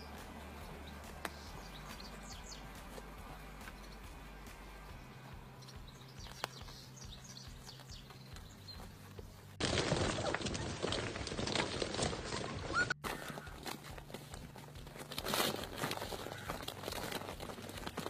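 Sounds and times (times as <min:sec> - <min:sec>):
plastic balls rattling and crinkling: 0:09.6 - 0:18.0.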